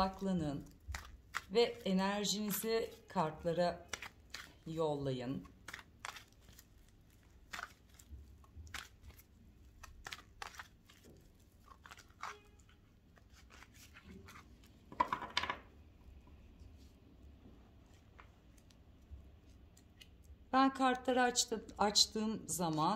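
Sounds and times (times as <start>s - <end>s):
cards being shuffled: 5.6s - 15.6s.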